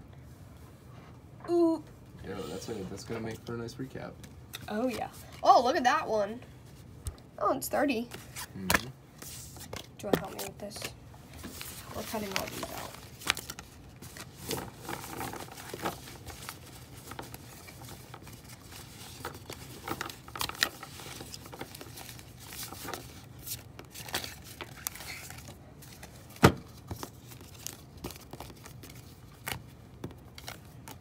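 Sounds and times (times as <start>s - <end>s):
cards shuffled on tabletop: 8.1s - 31.0s.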